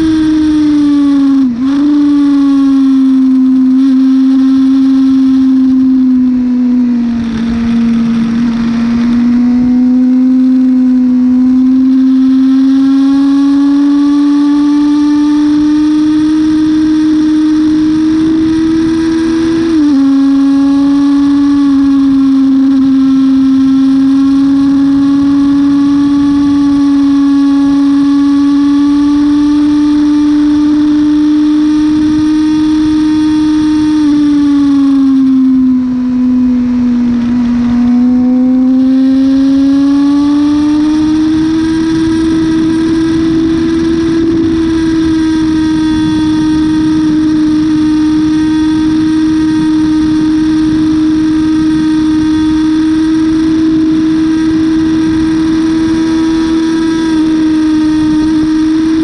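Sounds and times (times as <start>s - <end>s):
motorcycle engine at high revs: 0.0s - 59.0s
heavy wind rush: 31.3s - 59.0s.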